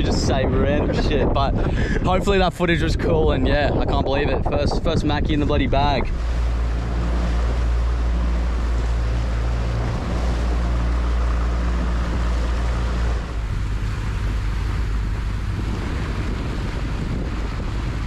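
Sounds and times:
wind and water rushing: 0:00.0 - 0:18.0
outboard motor running: 0:05.5 - 0:18.0.

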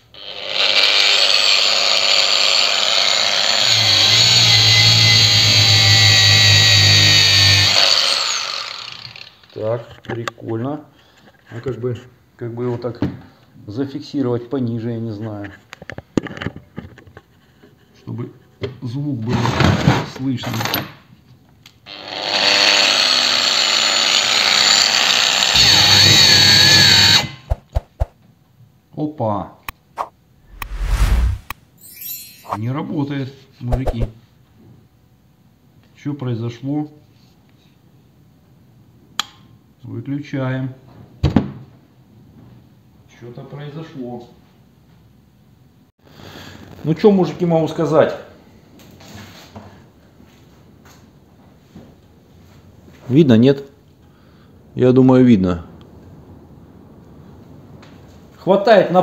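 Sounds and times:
angle grinder whining under load: 0:00.2 - 0:09.6, 0:21.9 - 0:27.3.

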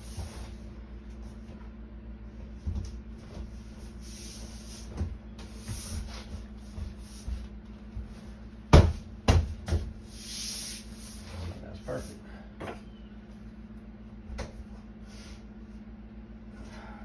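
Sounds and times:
hand slapping wall paneling: 0:02.6 - 0:11.2.

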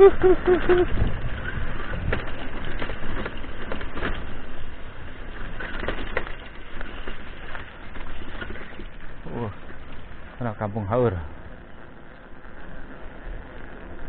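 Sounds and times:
bike frame rattling: 0:00.0 - 0:10.4
tyres crunching on gravel: 0:01.1 - 0:14.0.

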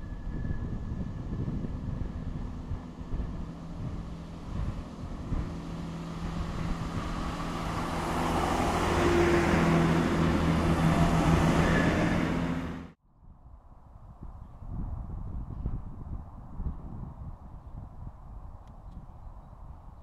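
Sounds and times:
diesel engines droning: 0:00.0 - 0:13.0
train rumbling: 0:00.0 - 0:13.0.

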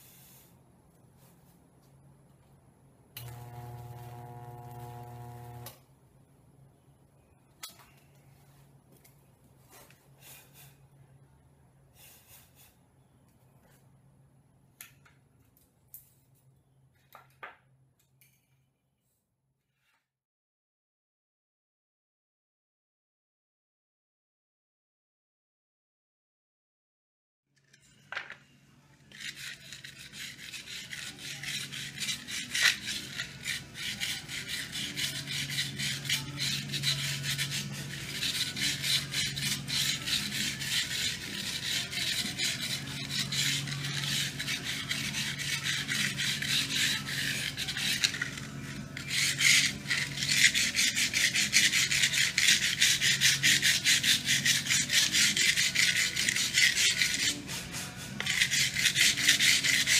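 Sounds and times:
wire brush scrubbing wood: 0:29.1 - 0:59.9.

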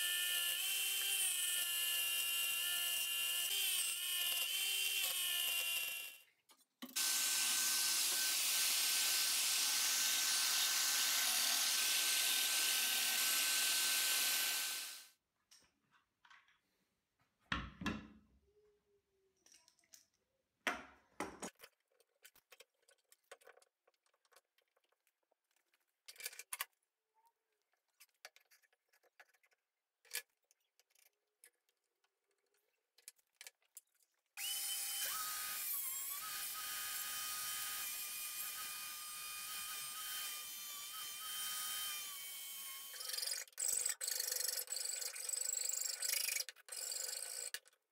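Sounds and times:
angle grinder grinding metal: 0:07.0 - 0:15.1, 0:34.4 - 0:47.6.

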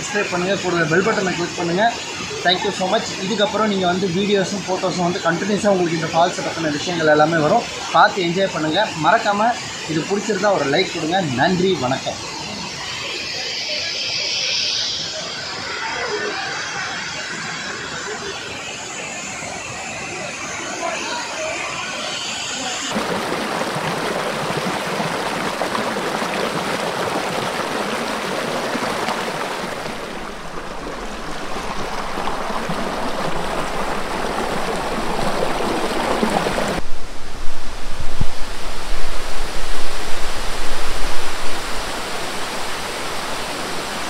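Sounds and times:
water rushing over boulders: 0:22.6 - 0:44.0.

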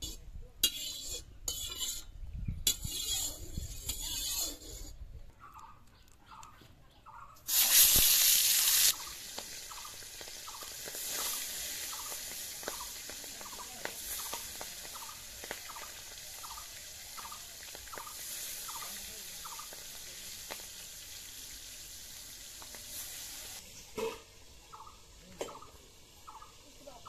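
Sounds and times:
oil crackling and popping: 0:07.5 - 0:24.1
fish sizzling in hot oil: 0:07.5 - 0:27.0.

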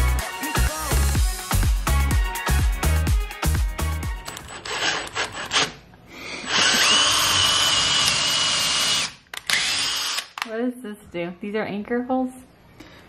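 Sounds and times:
cordless drill whining: 0:06.4 - 0:10.4.

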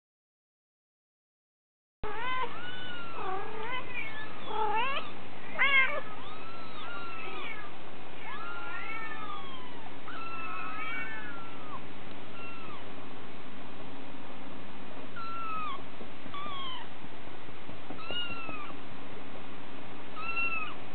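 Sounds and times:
kittens mewing: 0:02.0 - 0:12.9, 0:15.2 - 0:16.9, 0:17.9 - 0:18.8, 0:20.2 - 0:20.8.

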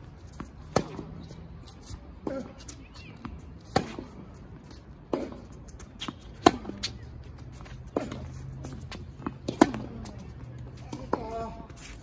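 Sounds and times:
tennis ball hit by rackets: 0:00.4 - 0:01.2, 0:03.6 - 0:04.2, 0:05.1 - 0:12.0.

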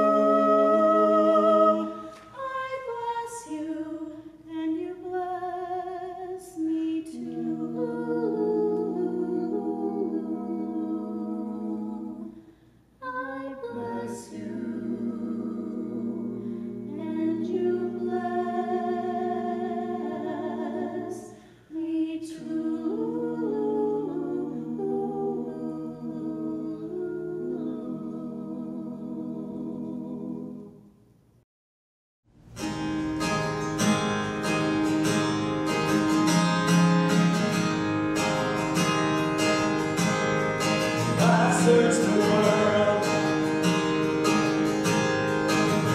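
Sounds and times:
vocal quartet singing a cappella: 0:00.0 - 0:31.0, 0:38.8 - 0:45.9
strummed acoustic guitar: 0:32.4 - 0:45.9.

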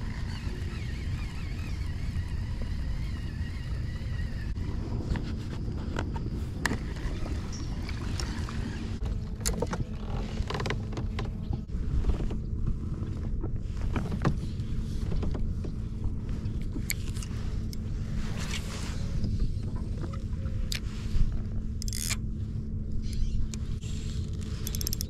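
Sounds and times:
steady low rumble: 0:00.0 - 0:25.0
clicks knocks and creaks from kayak: 0:05.0 - 0:18.6, 0:19.2 - 0:20.9, 0:23.0 - 0:25.0.

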